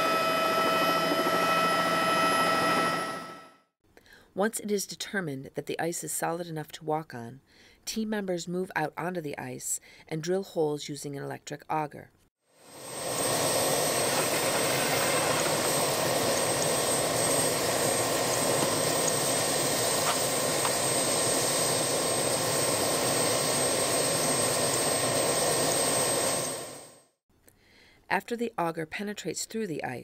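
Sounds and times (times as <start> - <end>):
helicopter turbine rushing: 0.0 - 3.5, 12.6 - 27.0
high constant whine: 12.7 - 26.9.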